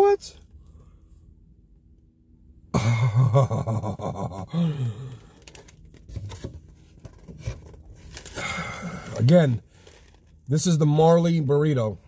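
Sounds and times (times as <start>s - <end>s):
man moaning mmm: 4.2s - 5.3s.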